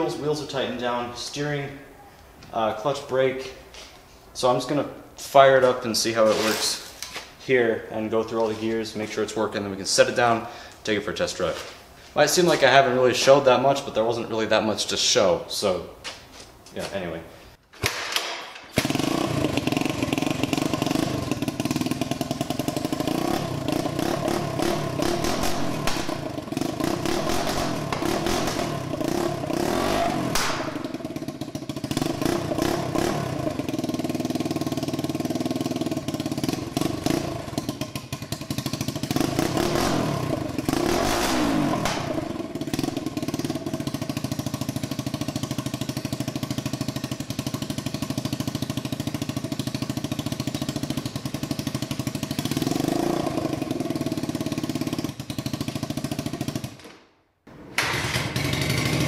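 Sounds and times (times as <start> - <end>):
engine revving: 18.8 - 56.6, 57.8 - 59.0
motorcycle engine idling unevenly: 18.9 - 29.5, 30.1 - 40.7, 41.4 - 52.6, 53.2 - 56.8.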